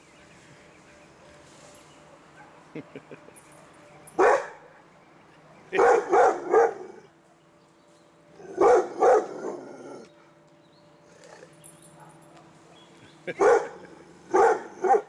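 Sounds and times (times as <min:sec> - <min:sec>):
dog barking: 0:04.2 - 0:04.7, 0:05.7 - 0:07.0, 0:08.6 - 0:09.6, 0:13.4 - 0:15.0.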